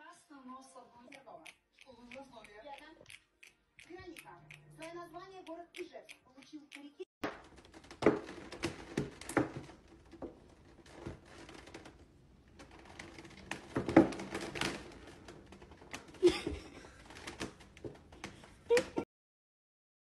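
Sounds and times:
plastic container crackling: 7.3 - 18.6.

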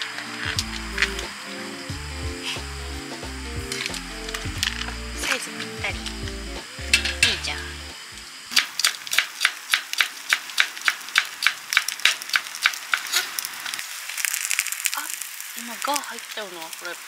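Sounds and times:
background music: 0.0 - 8.4.

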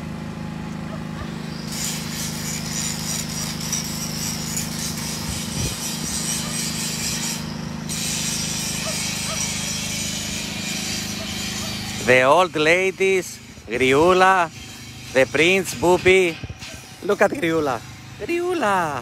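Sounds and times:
engine hum: 0.0 - 19.0.

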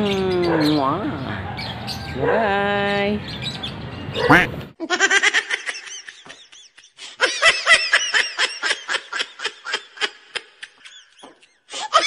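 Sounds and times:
high-pitched cackling laughter: 4.3 - 12.0.

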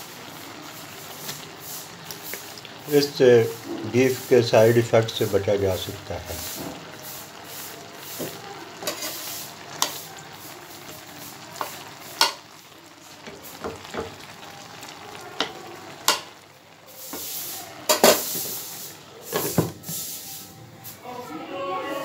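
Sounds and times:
metal turner scraping a pan: 6.1 - 10.0.

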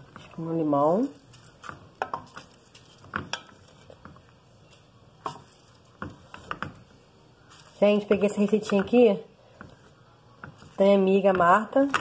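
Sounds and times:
wooden spoon knocking metal pot: 1.6 - 4.2, 10.4 - 12.0.

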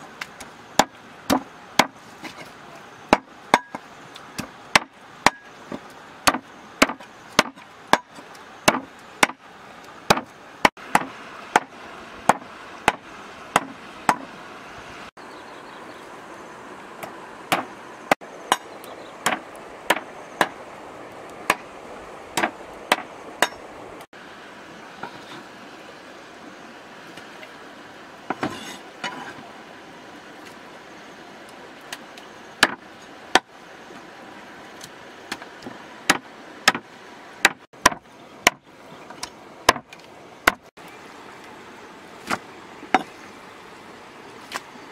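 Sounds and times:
cleaver chopping on wooden block: 0.8 - 2.0, 4.4 - 5.5, 6.2 - 9.4, 10.1 - 10.3, 10.9 - 11.7, 12.3 - 13.0, 13.6 - 14.3, 18.5 - 20.6, 32.6 - 32.8, 36.1 - 36.8, 37.4 - 38.6, 39.7 - 39.9.

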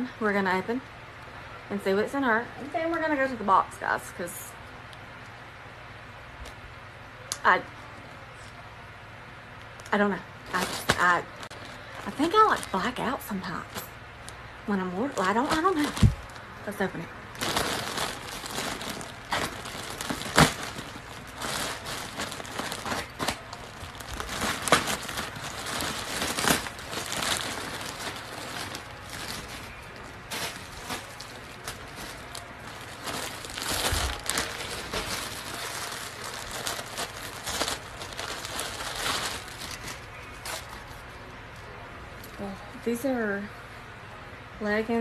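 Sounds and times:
plastic bags crinkling: 10.5 - 41.0.

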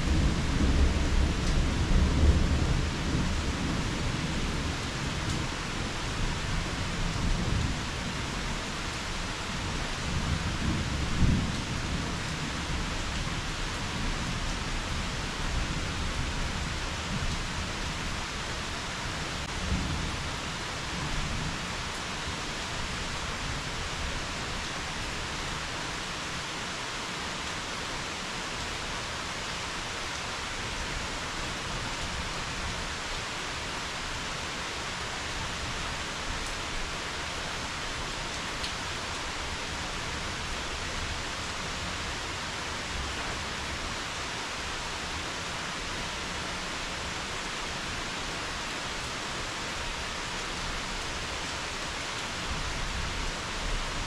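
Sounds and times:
steady rain: 0.0 - 54.0.

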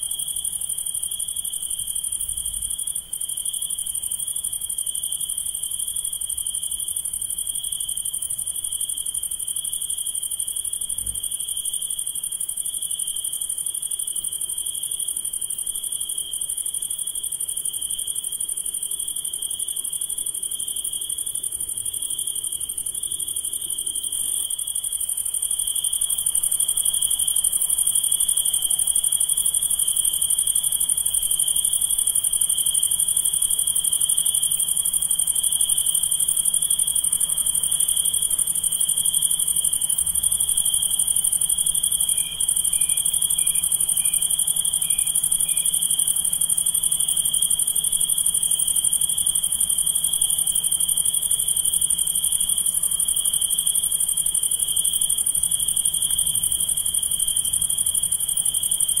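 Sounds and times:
crickets and katydids trilling: 0.0 - 59.0.

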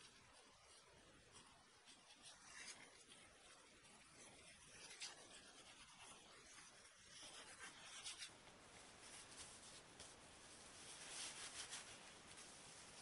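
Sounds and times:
gloves rubbing and rustling: 0.0 - 13.0.

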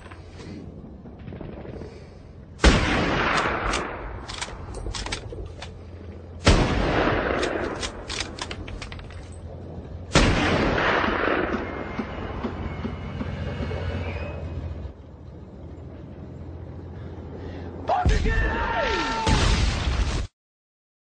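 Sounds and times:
heavy gunshots with echo: 1.2 - 4.2, 6.4 - 8.0, 10.1 - 12.0
sharp clicks: 3.3 - 5.8, 7.3 - 9.1.

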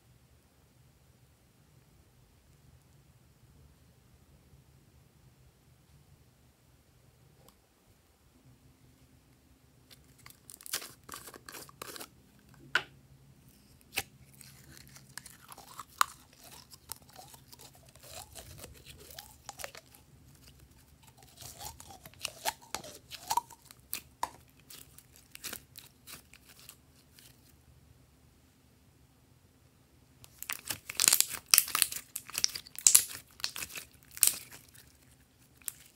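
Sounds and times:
slime squeaks: 13.9 - 26.8, 30.3 - 34.9.

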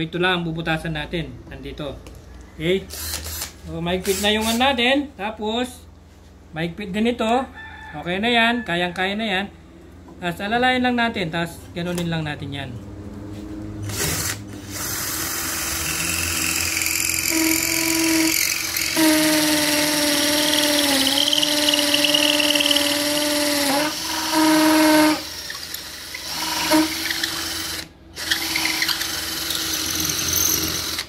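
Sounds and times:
cordless drill motor whining: 2.9 - 4.6, 13.8 - 31.0.

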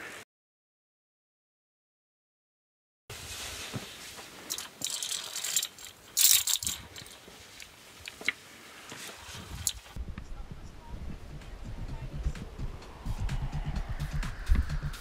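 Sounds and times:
carabiners rattling on steel cable: 4.4 - 8.3.

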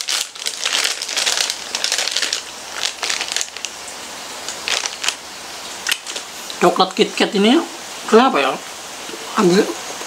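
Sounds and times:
plastic snack packet crinkling: 0.0 - 5.2, 5.8 - 6.3.

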